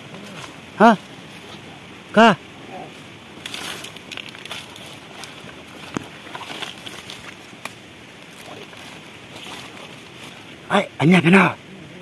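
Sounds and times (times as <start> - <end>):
footsteps through undergrowth: 0.0 - 1.8, 2.9 - 10.6
twigs snapping: 3.4 - 8.8.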